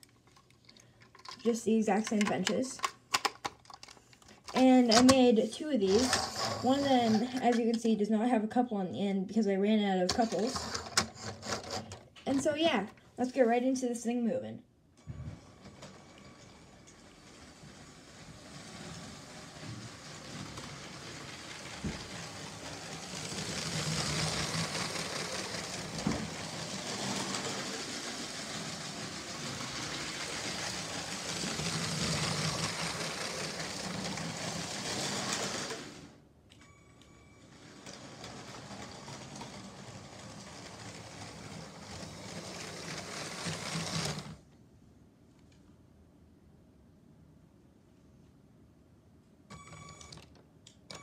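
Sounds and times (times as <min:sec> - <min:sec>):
toy train motor whirring: 0:05.9 - 0:07.6, 0:10.1 - 0:12.0, 0:16.8 - 0:36.1, 0:37.5 - 0:44.4.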